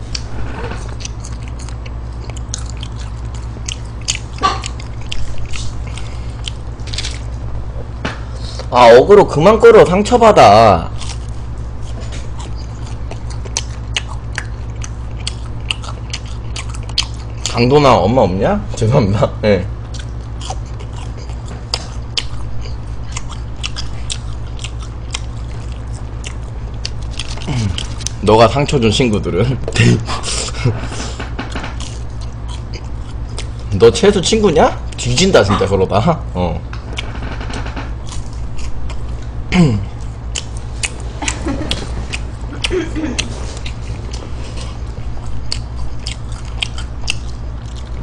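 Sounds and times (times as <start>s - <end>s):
low hum: 0.0s - 48.0s
chewing with wet mouth clicks: 0.9s - 7.3s, 10.9s - 17.6s, 19.8s - 28.2s, 31.5s - 33.7s, 34.8s - 35.6s, 40.0s - 48.0s.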